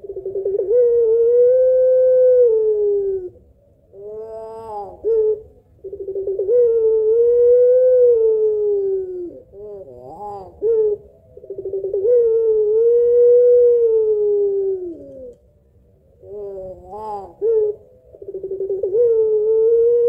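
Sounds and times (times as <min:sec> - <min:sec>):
dove cooing: 0:00.0 - 0:20.0.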